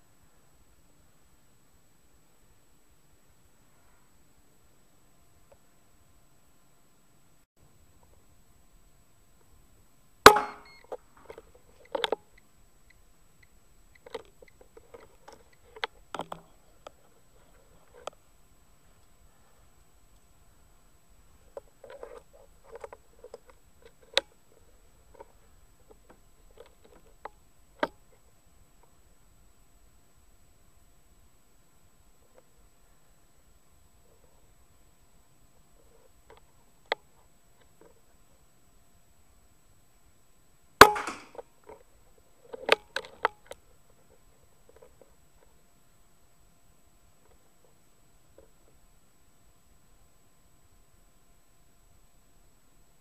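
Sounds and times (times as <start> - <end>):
rifle shot: 10.3 - 10.8, 40.8 - 41.4
sharp loud clicks: 10.3 - 11.0, 40.8 - 41.4
small ticks and scrapes: 10.9 - 20.3, 21.3 - 29.0, 35.6 - 38.4, 41.4 - 45.6, 47.2 - 48.8.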